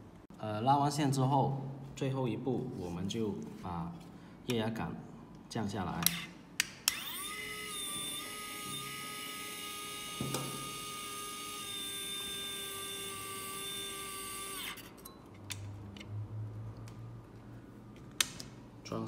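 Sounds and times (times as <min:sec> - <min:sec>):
electric hydraulic pump whining: 0:06.9 - 0:15.0.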